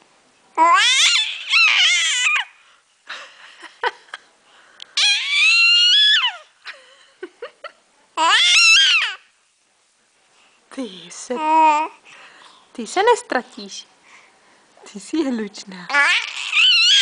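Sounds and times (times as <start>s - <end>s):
baby gurgling and cooing: 0.6s - 2.6s, 8.2s - 9.2s, 11.4s - 12.0s, 15.9s - 17.0s
baby squealing: 0.6s - 2.6s, 5.0s - 6.5s, 8.2s - 9.3s, 15.9s - 17.0s.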